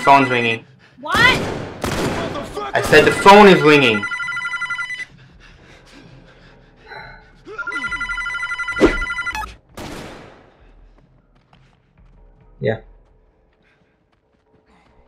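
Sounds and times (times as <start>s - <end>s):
electronic telephone ringing: 3.4s - 5.1s, 7.7s - 9.5s.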